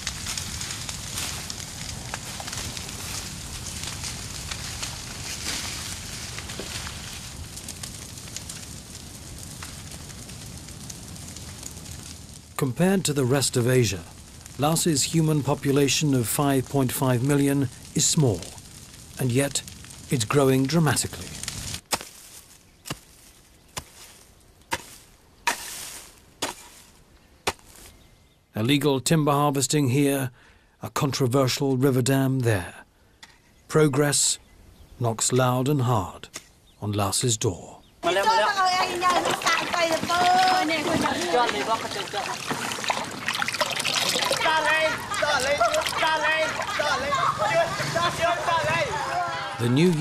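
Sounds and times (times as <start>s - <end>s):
fire burning brush: 0.0s - 28.4s, 32.9s - 50.0s
fire crackling and popping: 0.0s - 28.5s, 29.6s - 50.0s
hoe chopping dry soil: 21.8s - 27.9s.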